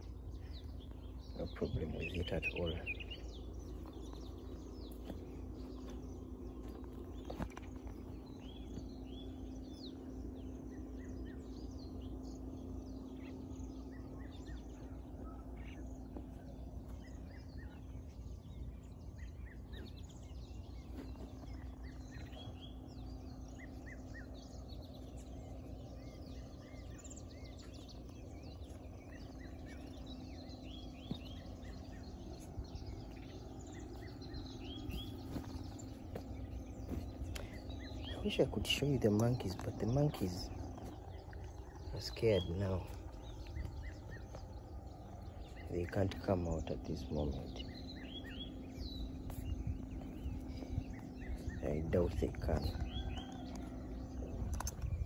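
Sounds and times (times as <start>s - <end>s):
faint steady hum: 0.0s - 55.0s
low outdoor background: 0.0s - 55.0s
small birds chirping: 0.0s - 55.0s.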